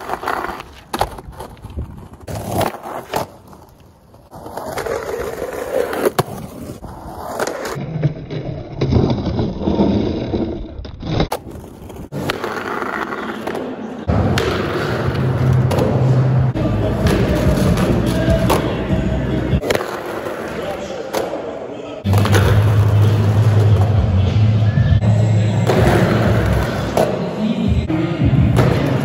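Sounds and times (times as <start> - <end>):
skateboard grinding on curb: 0.0 - 13.4
skateboard wheels rolling on concrete: 0.0 - 29.0.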